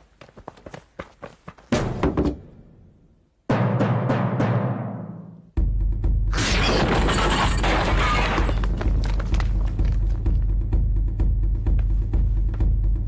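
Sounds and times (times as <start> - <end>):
wooden door crashing: 6.4 - 9.4.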